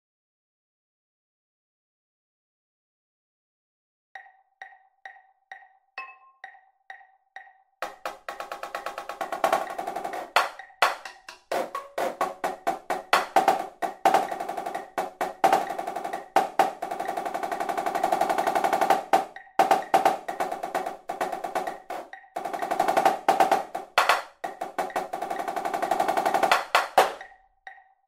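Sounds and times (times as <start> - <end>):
marching snare drum: 7.8 - 27.2.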